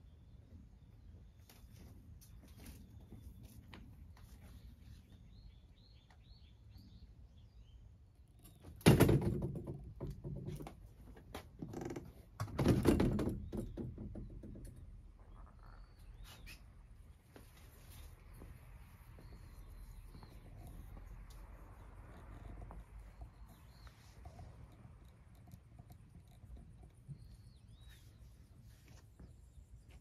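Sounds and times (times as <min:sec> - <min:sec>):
bird chirping: 0:00.0 - 0:08.8, 0:13.4 - 0:30.0
knocking and rustling: 0:08.5 - 0:15.4.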